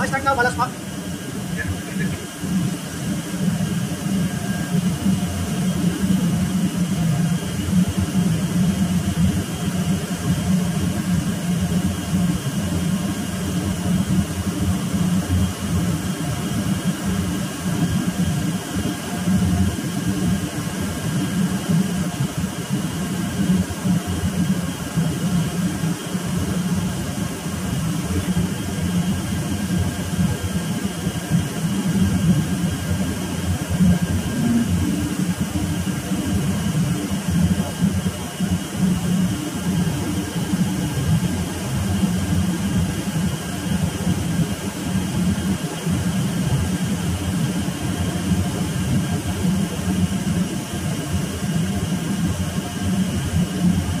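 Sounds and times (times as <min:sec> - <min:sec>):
shipboard machinery humming: 0:00.0 - 0:06.9, 0:24.7 - 0:45.5
faint machine whines: 0:00.0 - 0:54.0.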